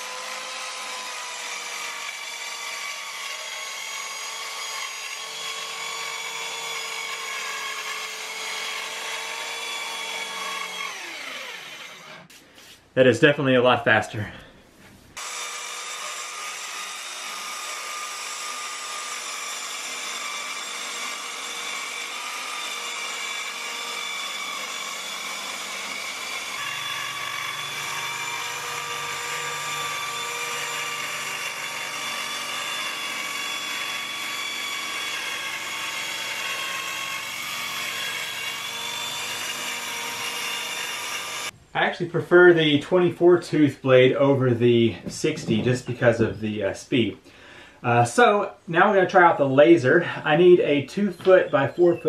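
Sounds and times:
circular saw cutting plywood: 0.0 - 12.4, 15.2 - 41.6.

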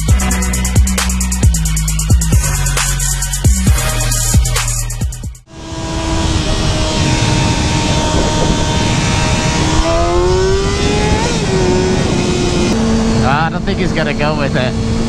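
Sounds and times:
motorcycle engine revving: 5.4 - 15.0
wind noise: 5.5 - 15.0.

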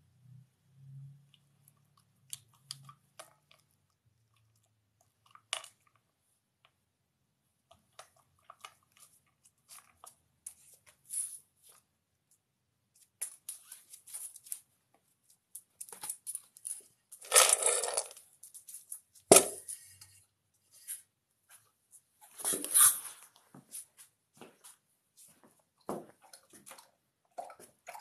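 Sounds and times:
dog crunching dry kibble: 15.8 - 18.2.

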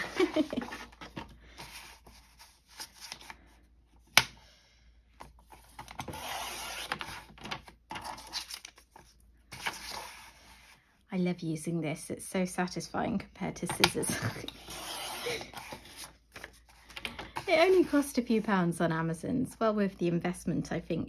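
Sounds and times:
paper rustling: 5.5 - 10.8
paper trimmer blade scraping: 6.0 - 7.2.

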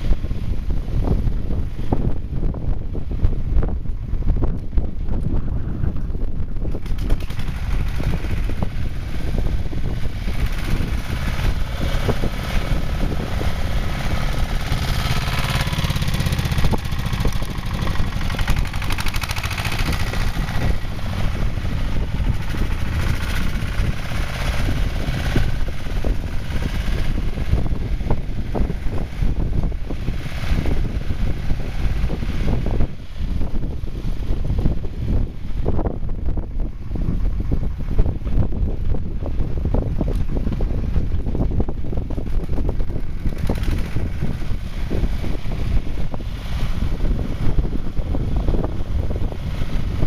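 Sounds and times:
tractor engine chugging: 6.1 - 33.6, 36.6 - 50.0
snow blade pushing snow: 6.9 - 27.7.

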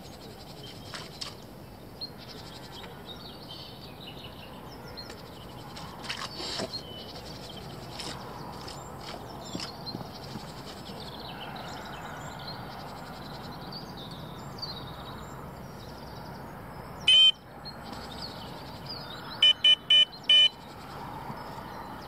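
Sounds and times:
small birds chirping: 0.0 - 22.0
electronic bite alarm beeping: 17.1 - 17.4, 19.4 - 20.6.

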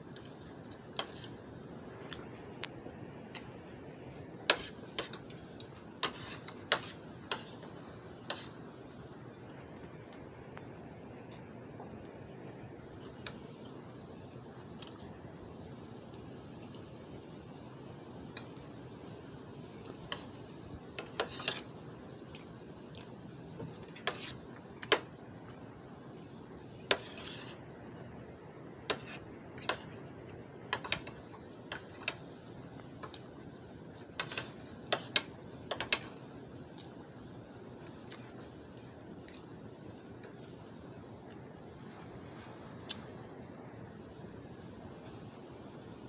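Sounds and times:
background hiss: 0.0 - 46.0
metal fork scraping a dish: 6.0 - 7.5, 21.0 - 21.7, 26.9 - 27.6.

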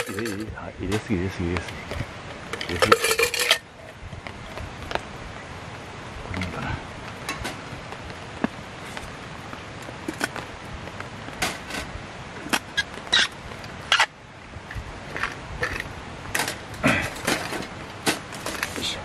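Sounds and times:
tableware clicking and knocking: 0.0 - 0.5, 2.5 - 3.6
steady hiss: 0.0 - 19.0.

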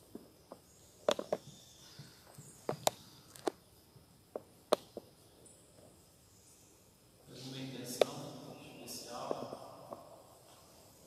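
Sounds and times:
sharp knocks and clicks: 0.5 - 1.6.

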